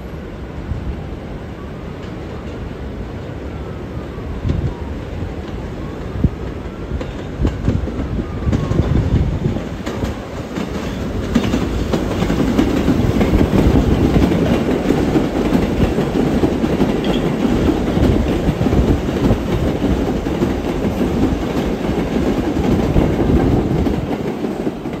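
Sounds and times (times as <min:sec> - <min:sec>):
subway train passing: 0:00.0 - 0:25.0
wheels clattering on rails: 0:06.5 - 0:25.0.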